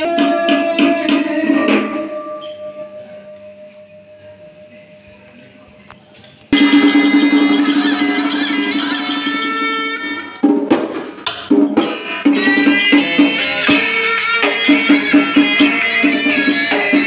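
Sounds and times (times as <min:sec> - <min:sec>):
ceremonial music: 0:00.0 - 0:05.8, 0:06.4 - 0:17.0
percussion strokes: 0:06.5 - 0:17.0.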